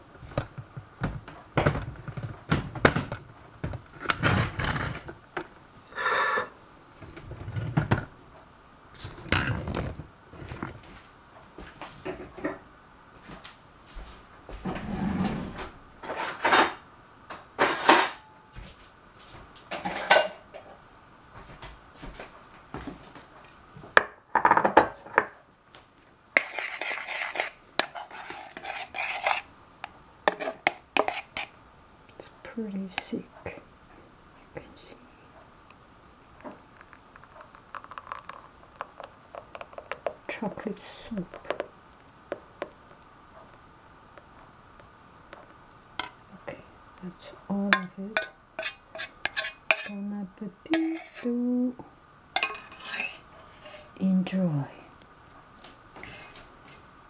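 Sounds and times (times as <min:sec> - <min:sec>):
dishes and utensils clattering: 0:16.0 - 0:16.8, 0:17.6 - 0:18.3, 0:19.7 - 0:20.8, 0:52.4 - 0:53.9.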